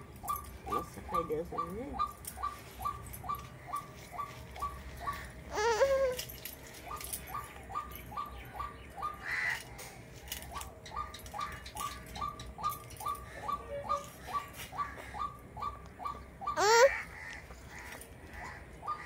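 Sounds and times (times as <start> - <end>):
wavering cry: 1.1 - 9.6, 12.2 - 17.8.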